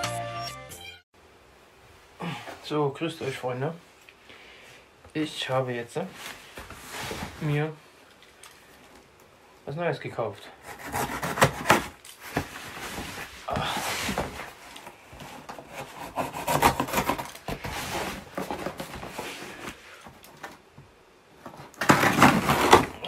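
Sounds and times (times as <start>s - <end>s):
scissors scraping cardboard: 10.6s - 12.0s, 15.2s - 19.3s
cardboard rubbing and knocking: 10.7s - 14.6s, 15.2s - 19.8s, 21.4s - 23.0s.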